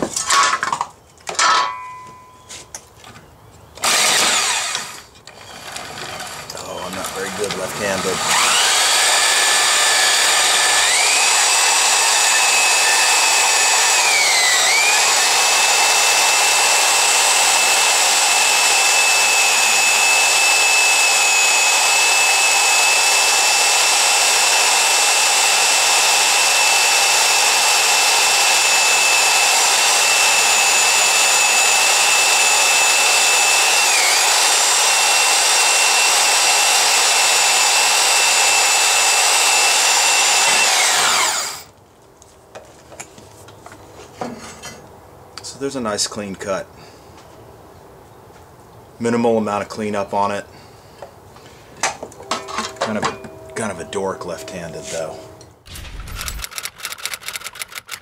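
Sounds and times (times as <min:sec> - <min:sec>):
band saw cutting steel: 0:03.8 - 0:41.7, 0:52.2 - 0:58.0.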